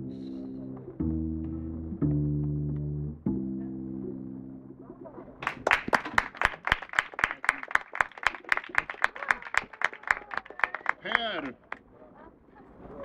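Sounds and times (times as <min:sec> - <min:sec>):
small audience clapping: 0:05.4 - 0:11.9.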